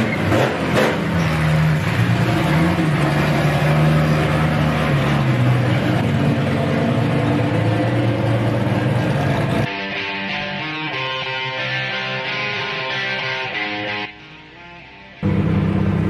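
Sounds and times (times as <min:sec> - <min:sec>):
car engine running: 0:00.0 - 0:09.7, 0:15.2 - 0:16.0.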